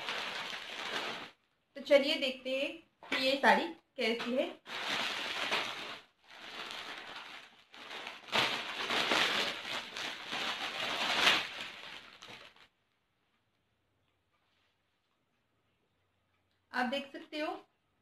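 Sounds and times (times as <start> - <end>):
plastic packaging crinkling: 0.0 - 1.5, 4.6 - 12.7.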